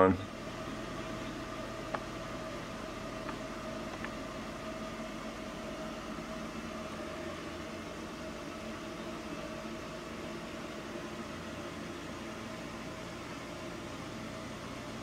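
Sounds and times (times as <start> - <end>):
indoor appliance hum: 0.0 - 15.0.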